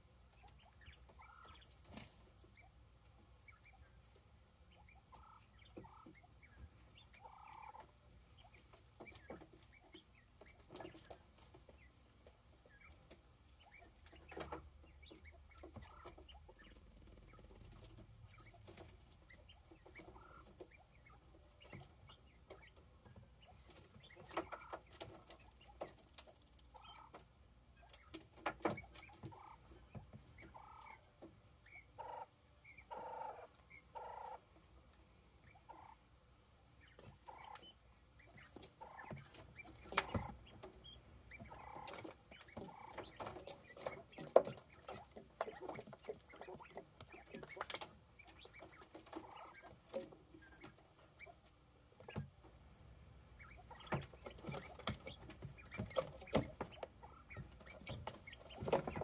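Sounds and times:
quail calling softly: 0.3 - 2.8, 4.7 - 11.9, 12.6 - 26.0, 26.6 - 34.6, 35.4 - 36.1, 36.8 - 52.3.

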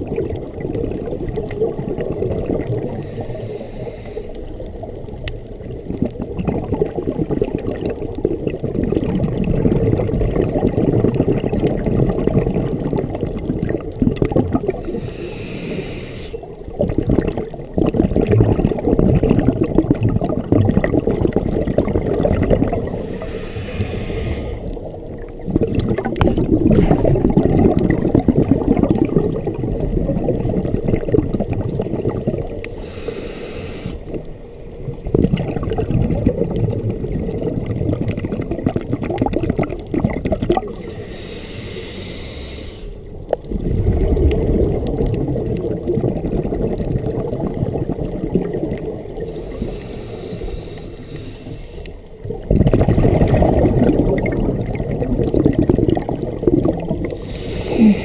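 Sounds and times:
underwater bubbling: 0.0 - 58.0
regulator hissing: 14.9 - 16.4, 22.9 - 24.6, 32.8 - 34.0.

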